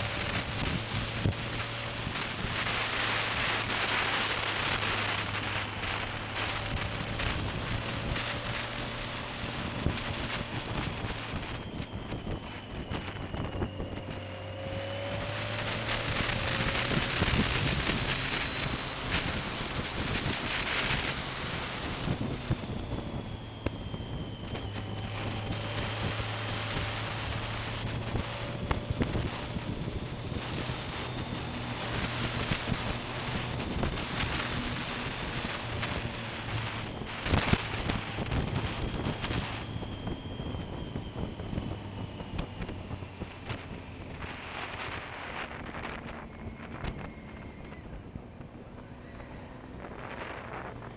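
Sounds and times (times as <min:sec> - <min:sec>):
sharp crackle: 0:00.0 - 0:23.8
motorcycle engine hum: 0:00.0 - 0:50.9
wind buffeting microphone: 0:00.0 - 0:50.9.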